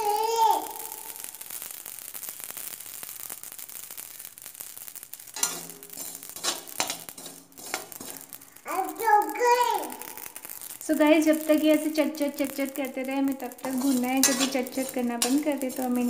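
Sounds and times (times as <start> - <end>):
seeds popping in a pan: 0.0 - 16.0
spatula scraping metal pan: 5.4 - 8.3, 13.6 - 16.0.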